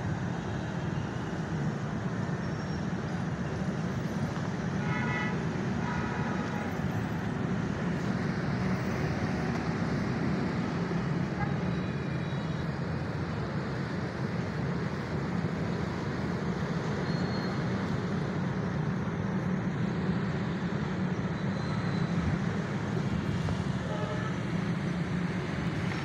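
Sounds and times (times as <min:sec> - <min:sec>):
road traffic: 0:00.0 - 0:26.0
vehicle horn tooting: 0:23.9 - 0:24.4.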